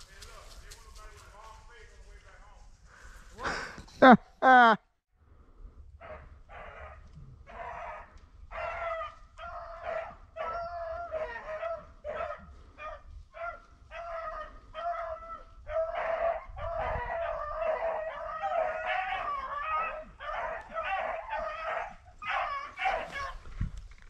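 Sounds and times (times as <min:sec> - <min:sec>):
dogs baying: 0:06.0 - 0:23.4.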